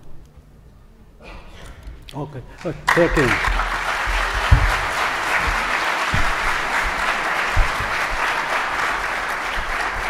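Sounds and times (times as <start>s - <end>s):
audience applauding: 2.6s - 10.0s
dull low thumps: 4.0s - 9.0s.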